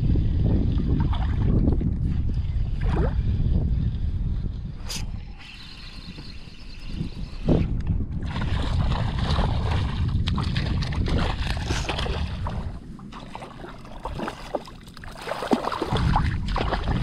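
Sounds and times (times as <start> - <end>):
wind rumble on microphone: 0.0 - 17.0
water sloshing from wading: 8.2 - 17.0.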